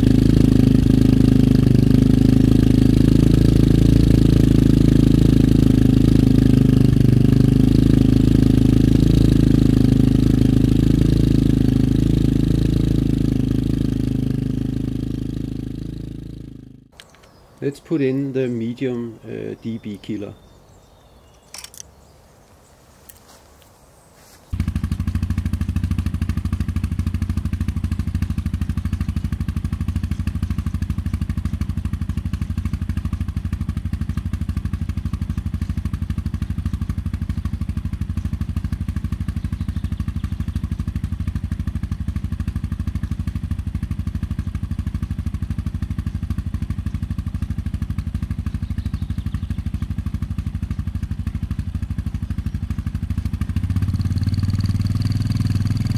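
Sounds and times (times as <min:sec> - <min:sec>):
motorcycle engine running: 0:00.0 - 0:17.1, 0:24.5 - 0:55.9
faint clicks: 0:17.0 - 0:17.4, 0:21.4 - 0:21.9.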